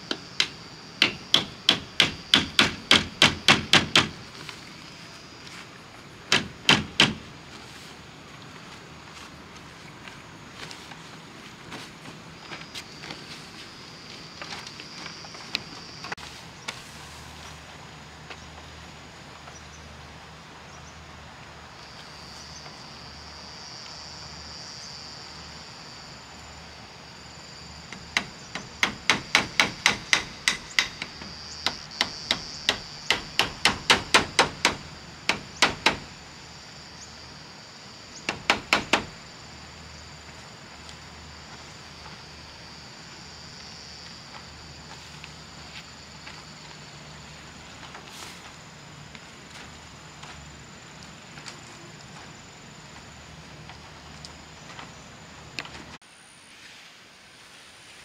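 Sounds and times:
high background buzz: 0.0s - 9.8s, 24.6s - 40.8s
hammer driving nails: 0.1s - 4.2s, 6.3s - 7.2s, 28.1s - 36.1s, 38.3s - 39.1s.

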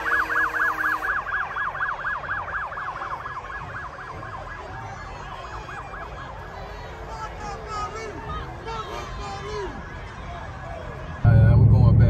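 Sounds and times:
low steady rumble: 11.2s - 12.0s.

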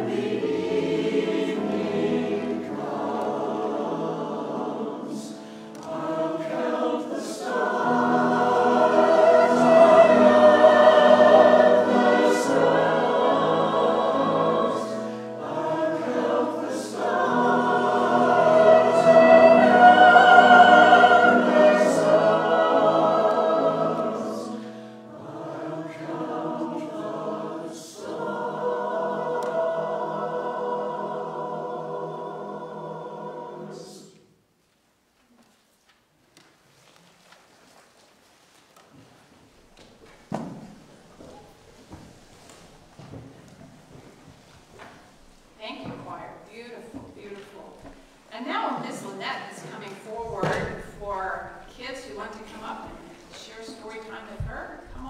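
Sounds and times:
church choir singing: 0.0s - 34.4s, 46.9s - 55.0s.

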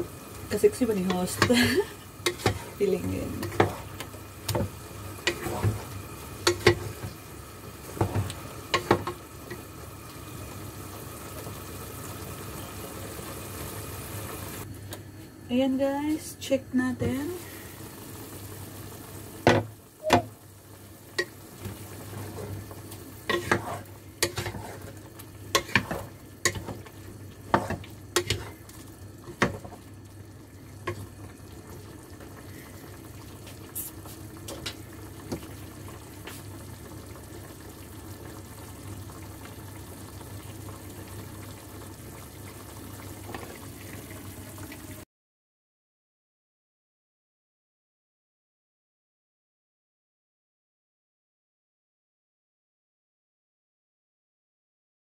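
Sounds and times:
food sizzling: 0.0s - 45.0s.

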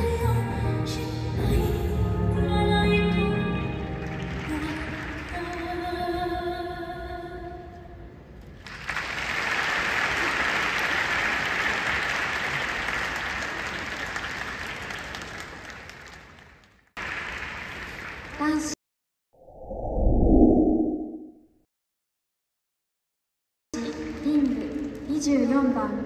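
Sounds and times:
music with long held notes: 0.0s - 6.0s
audience applause: 3.9s - 5.6s, 8.6s - 18.5s.

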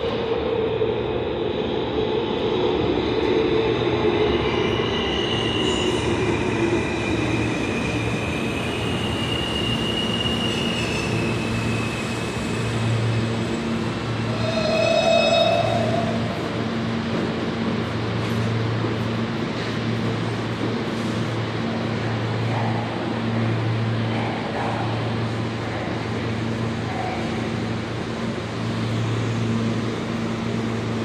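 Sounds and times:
train wheels rumbling on rail: 0.0s - 31.0s
high wheel squeals: 14.3s - 16.4s.

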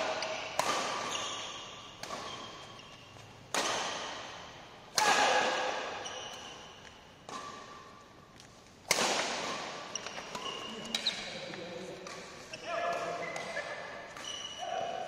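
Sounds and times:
rackets hitting shuttlecock: 0.0s - 14.8s.

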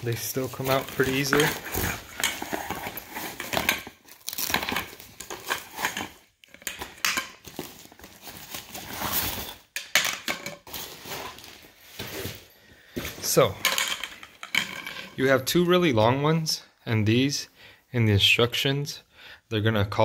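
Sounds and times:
fabric and cardboard rustling: 0.0s - 4.1s, 10.7s - 13.4s.

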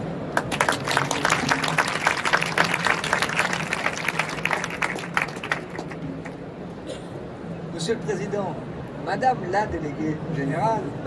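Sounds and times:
audience applauding: 0.3s - 6.4s.

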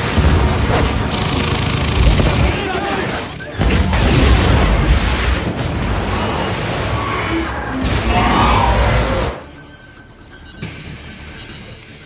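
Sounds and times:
explosion blasts and rumble: 0.0s - 9.4s.

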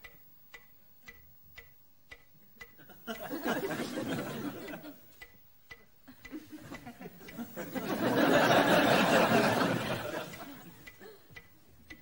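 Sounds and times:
faint ticking: 0.0s - 12.0s
audience laughing: 2.8s - 5.0s, 6.1s - 11.2s.

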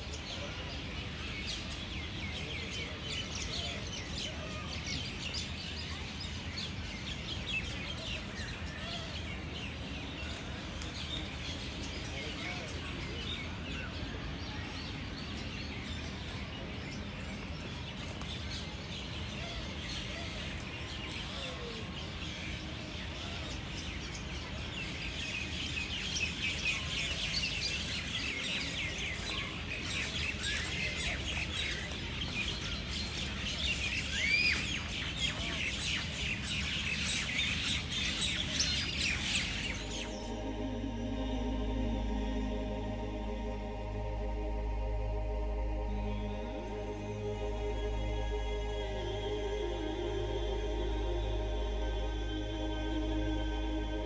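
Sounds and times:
small birds chirping: 0.0s - 40.5s
low background rumble: 39.7s - 54.0s.

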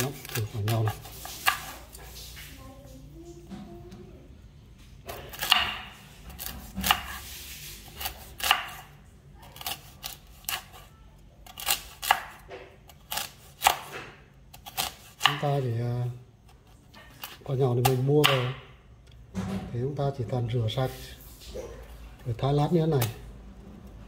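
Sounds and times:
knife chopping fruit: 0.0s - 2.2s, 5.1s - 10.8s, 11.5s - 15.6s, 16.5s - 18.7s, 22.9s - 23.2s.

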